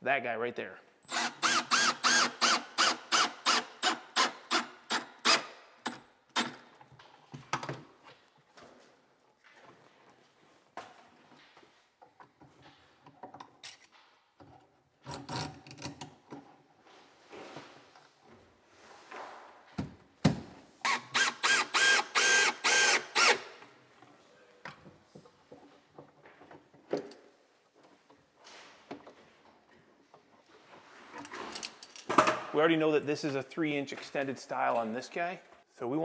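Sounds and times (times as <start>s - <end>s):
cordless drill bursts: 1.0s - 5.5s, 20.8s - 23.5s.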